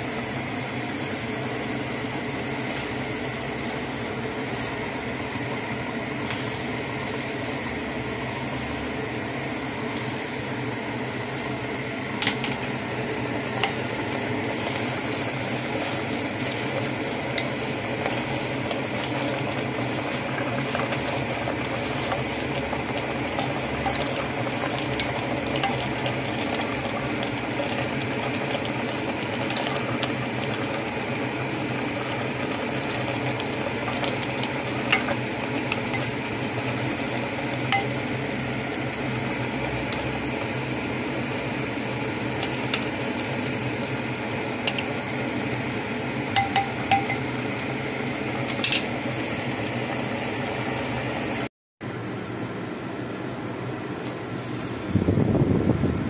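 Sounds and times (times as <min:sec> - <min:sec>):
steady hum: 0:00.0 - 0:56.0
spoon clinking against pot: 0:46.4 - 0:47.3.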